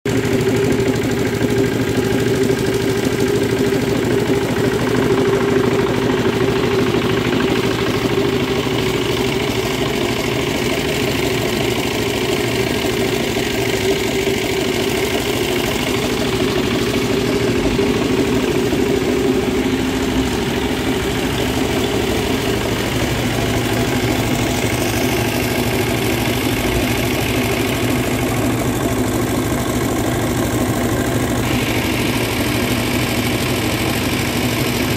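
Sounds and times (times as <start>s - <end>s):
engine idling: 0.0s - 34.9s.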